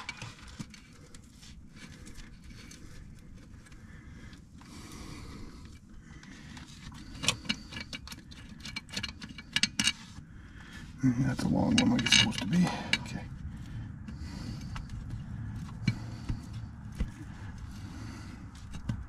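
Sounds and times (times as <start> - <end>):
low steady hum: 0.0 - 19.0
metal bolts clinking and scraping: 6.9 - 10.2, 11.4 - 13.3.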